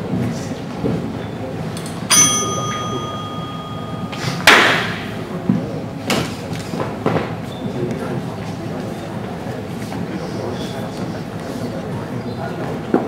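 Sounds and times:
bell ringing: 2.1 - 5.2.

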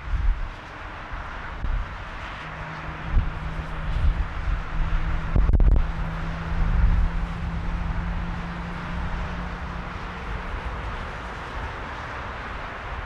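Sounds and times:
wind buffeting microphone: 0.0 - 13.0
jet engines hissing: 0.6 - 13.0
low hum: 1.6 - 11.5.

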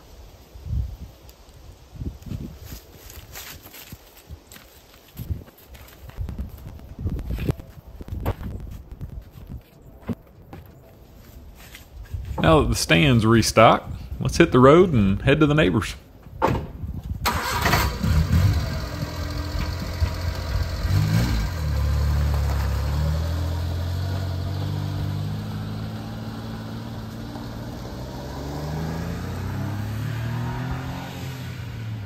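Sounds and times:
mini truck engine pulling away: 17.2 - 32.0
engine knocks: 17.3 - 22.9.

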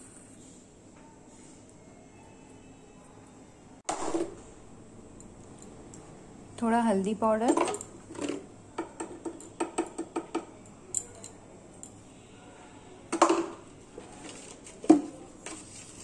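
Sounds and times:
plastic spoon tapping metal bowl: 8.8 - 10.6.

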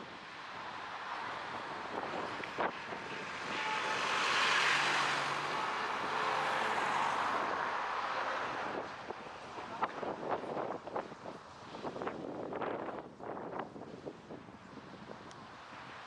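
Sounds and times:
car driving past: 2.2 - 8.8.

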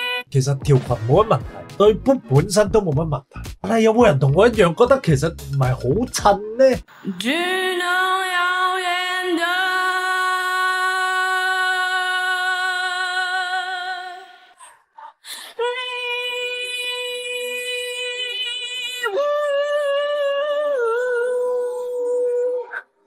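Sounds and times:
young woman singing with vibrato: 7.0 - 23.0.

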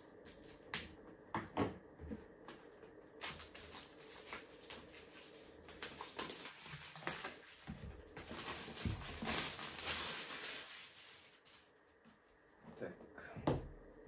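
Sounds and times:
plastic wrap crackling and tearing: 3.2 - 11.6.

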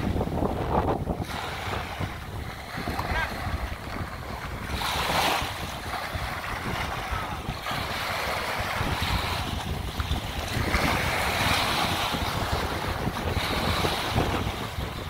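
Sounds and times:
small waves washing on shore: 0.0 - 15.0
wind buffeting microphone: 0.0 - 15.0.

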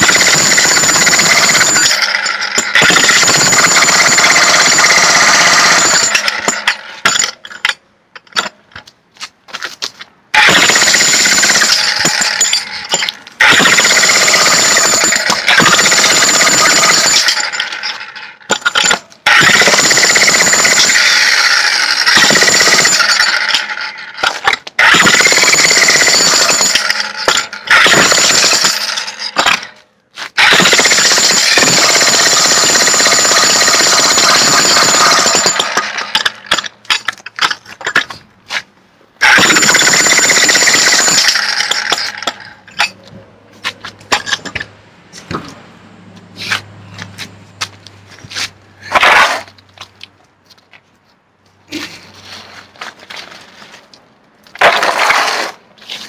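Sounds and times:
jackhammer chiselling concrete: 0.0 - 7.2, 10.4 - 29.6, 30.4 - 36.3, 39.2 - 42.3.

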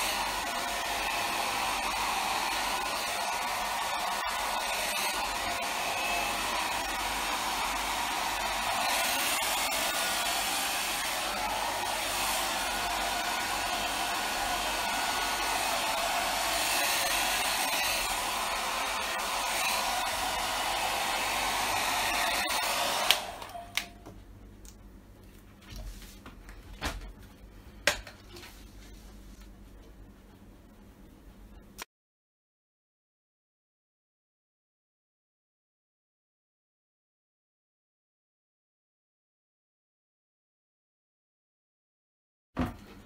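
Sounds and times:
hair dryer blowing: 0.0 - 24.0
hair dryer switch click: 22.9 - 24.0.

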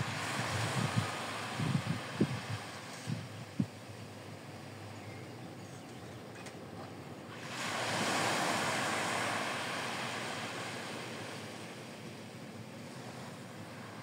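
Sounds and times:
wave breaking on sandy beach: 0.0 - 3.3, 7.3 - 14.0.

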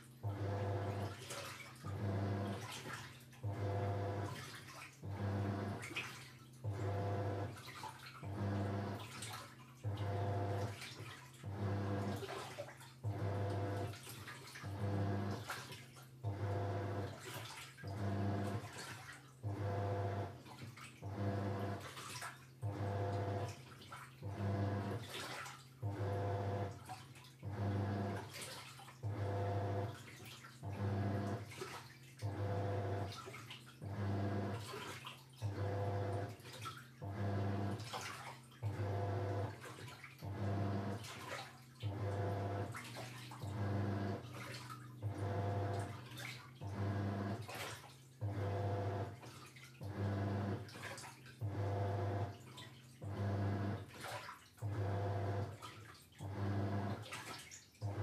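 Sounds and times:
washing machine motor humming: 0.0 - 54.0, 54.6 - 57.2
water sloshing and splashing: 0.0 - 58.0.

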